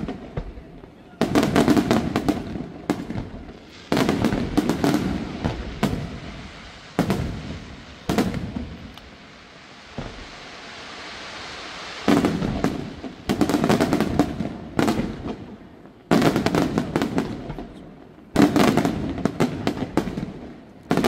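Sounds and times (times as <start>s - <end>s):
firework bang: 0.0s - 17.8s
firework shells bursting: 1.3s - 20.2s.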